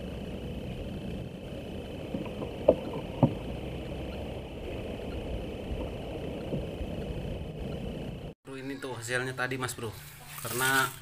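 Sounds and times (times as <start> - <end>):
low wash of water: 0.0 - 7.6
sharp knocks on boat: 2.1 - 3.6.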